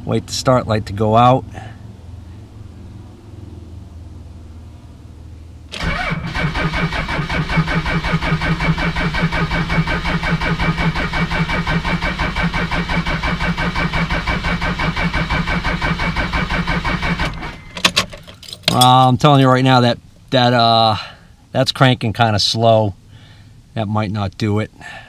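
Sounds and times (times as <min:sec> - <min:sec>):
diesel engine starter cranking: 0:05.7 - 0:19.8.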